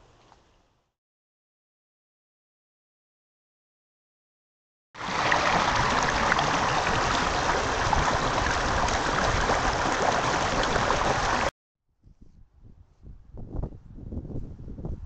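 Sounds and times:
running water rushing: 0:05.0 - 0:11.5.

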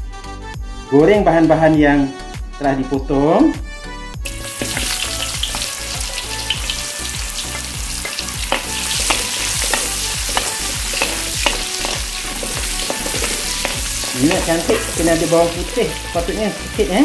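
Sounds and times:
shallots sizzling in oil: 0:04.2 - 0:17.0
wooden spatula scraping wok: 0:04.4 - 0:16.6.

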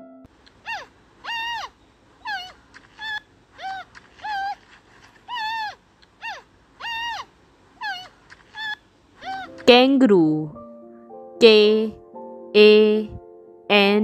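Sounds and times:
panda high-pitched calls: 0:00.5 - 0:09.7.

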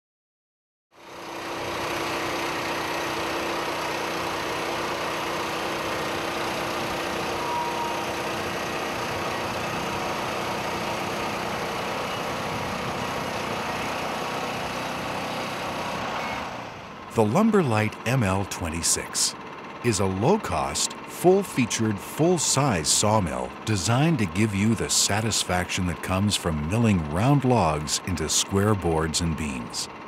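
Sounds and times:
small gasoline engine running: 0:01.0 - 0:30.0.

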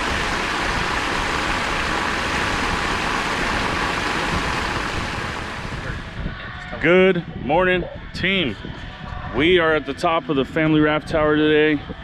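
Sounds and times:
water jetting from a pipe: 0:00.0 - 0:06.2.

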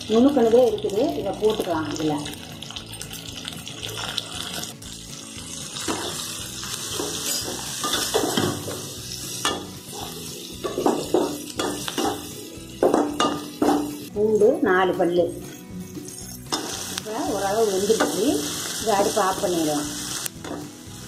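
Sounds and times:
food frying in oil: 0:00.0 - 0:14.6, 0:15.9 - 0:21.0
metal spatula scraping pan: 0:05.8 - 0:14.0.

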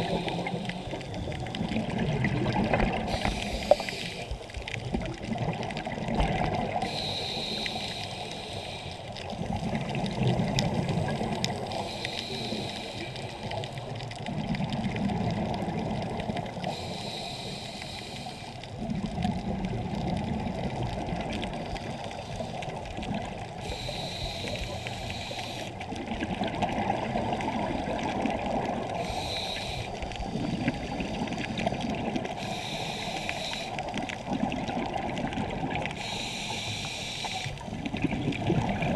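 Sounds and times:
hissing regulator inhale: 0:00.0 - 0:01.2, 0:03.0 - 0:04.5, 0:06.8 - 0:09.2, 0:11.6 - 0:13.8, 0:16.6 - 0:18.6, 0:23.6 - 0:25.8, 0:29.0 - 0:33.9, 0:35.9 - 0:37.7
exhaled bubbles gushing: 0:00.0 - 0:07.0, 0:09.2 - 0:11.8, 0:13.5 - 0:16.6, 0:18.7 - 0:22.1, 0:25.8 - 0:32.4, 0:33.8 - 0:36.0, 0:37.6 - 0:38.9.

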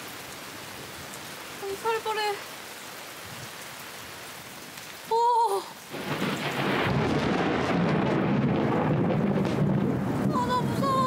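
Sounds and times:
steady rain: 0:00.0 - 0:11.0
thunder rumbling: 0:05.9 - 0:11.0.

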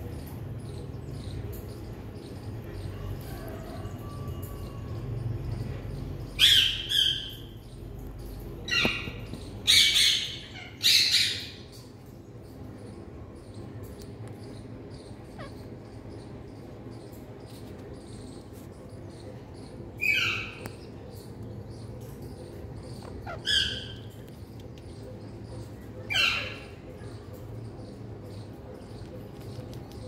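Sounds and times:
parakeets squawking: 0:15.1 - 0:16.2, 0:22.9 - 0:24.2.

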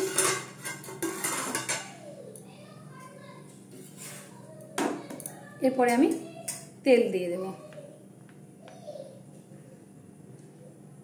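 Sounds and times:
metal spatula scraping iron griddle: 0:00.0 - 0:01.9, 0:03.7 - 0:04.4.

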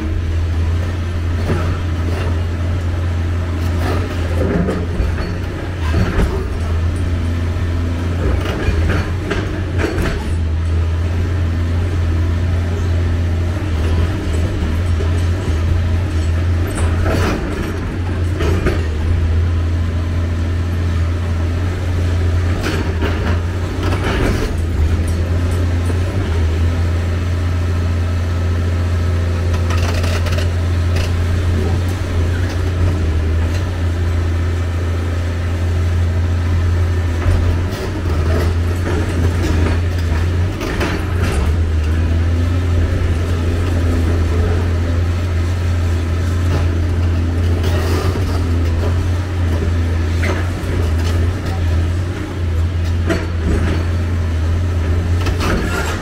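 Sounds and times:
excavator diesel engine running: 0:00.0 - 0:56.0
sharp clatters and knocks: 0:29.4 - 0:33.9.

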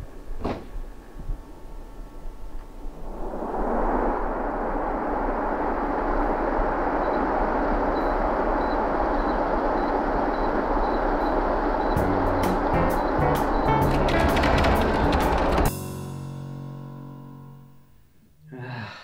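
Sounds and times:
air conditioner blowing air: 0:04.6 - 0:16.6
music with a beat: 0:12.0 - 0:17.6.

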